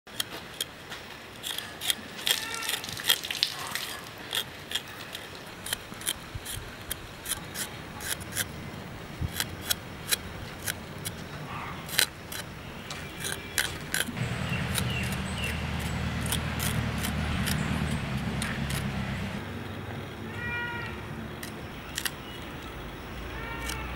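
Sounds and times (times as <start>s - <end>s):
knife scraping seeds: 0.1s - 8.6s, 9.3s - 19.0s, 21.4s - 22.8s, 23.5s - 23.9s
steady low hum: 3.9s - 20.4s.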